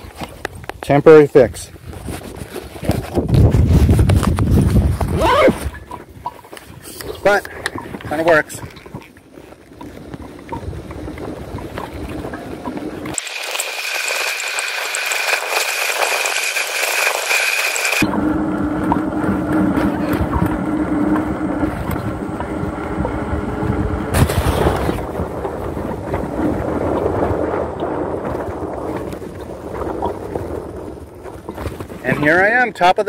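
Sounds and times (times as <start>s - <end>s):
wind rushing over microphone: 0.0s - 33.0s
steady high whine: 9.6s - 28.8s
electric motor hum: 10.7s - 25.6s.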